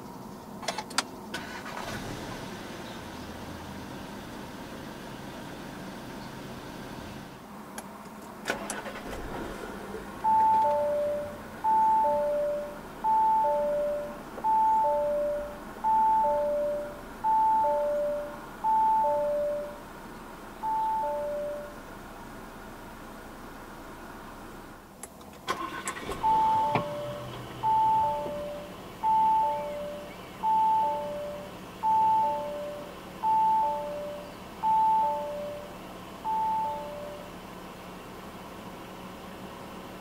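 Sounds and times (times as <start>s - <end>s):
faint engine idle: 0.0s - 40.0s
two-note warning chime: 10.3s - 19.8s, 20.6s - 21.8s, 26.2s - 37.3s.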